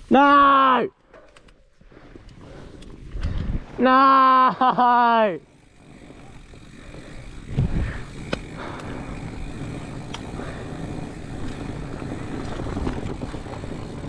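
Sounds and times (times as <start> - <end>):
bike rattling clicks: 1.0 - 3.8, 4.8 - 14.0
bike tyres rumbling on gravel: 1.7 - 14.0
wind on microphone: 7.5 - 8.1.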